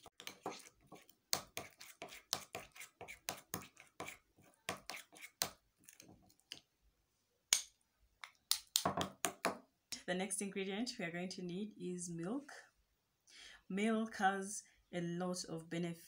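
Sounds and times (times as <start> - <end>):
spoon scraping a glass bowl: 0.0 - 6.0.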